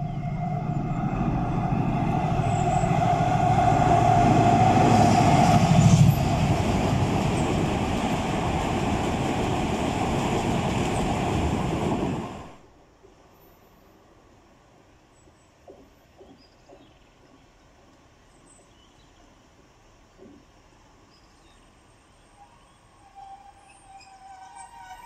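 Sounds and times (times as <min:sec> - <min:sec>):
steady tone: 0:00.0 - 0:05.8
freight train wheels rumbling: 0:00.0 - 0:12.7.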